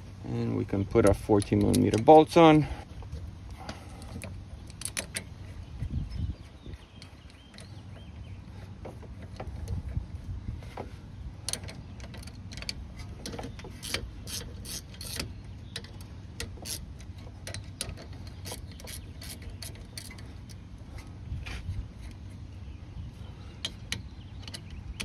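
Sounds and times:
ratchet wrench clicking: 13.7 - 20.6.

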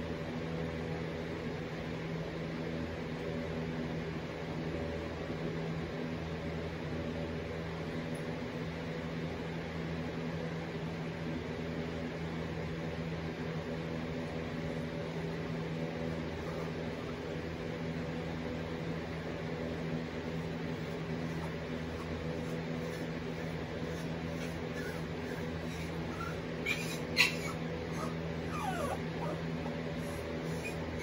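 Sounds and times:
household appliance humming: 15.5 - 31.0.

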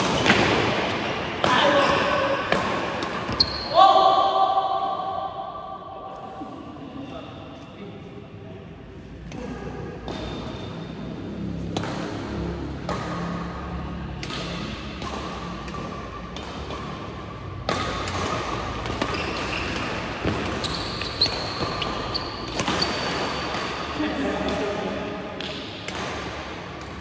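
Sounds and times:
rackets striking shuttlecock: 9.2 - 11.0, 11.6 - 27.0.

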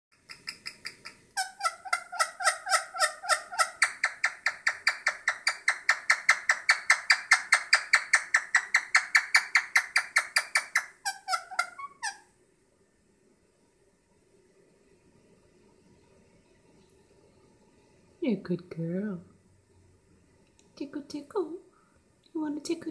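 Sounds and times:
parakeet clucking: 0.2 - 12.2.

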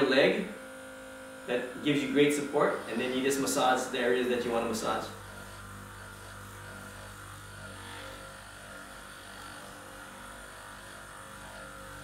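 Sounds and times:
massage gun motor hum: 0.0 - 12.0.

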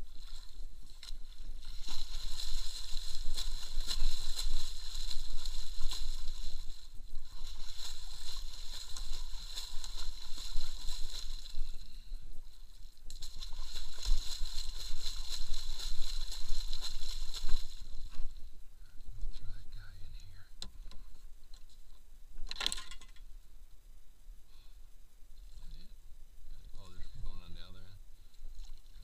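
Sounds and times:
water splashing and sloshing: 0.0 - 18.6, 28.3 - 29.0.

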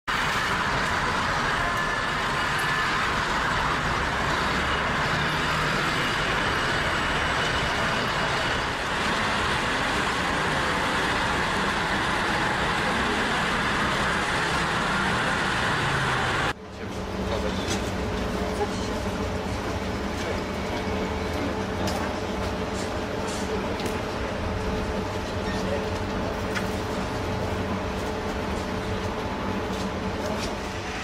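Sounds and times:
tyres hissing on wet road: 0.1 - 16.6.

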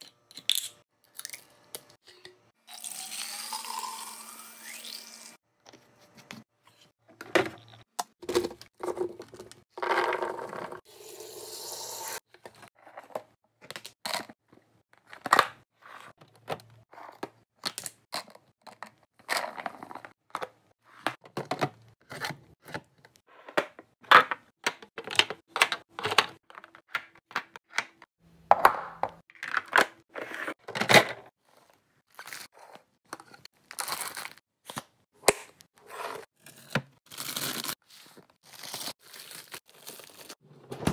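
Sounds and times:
plastic packaging crinkling and tearing: 33.6 - 34.4, 38.4 - 40.4.

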